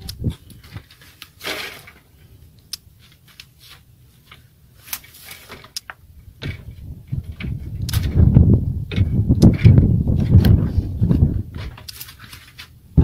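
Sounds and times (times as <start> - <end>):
bicycle handling clicks and knocks: 4.2 - 8.3, 8.9 - 12.8
brief rustle: 9.4 - 12.8.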